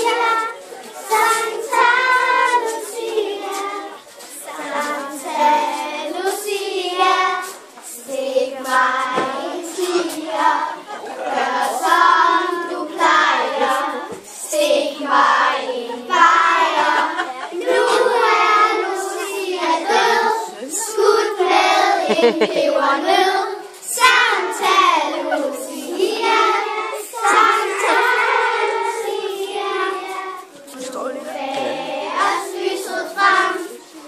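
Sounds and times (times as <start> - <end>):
children's choir singing: 0.0 - 34.0.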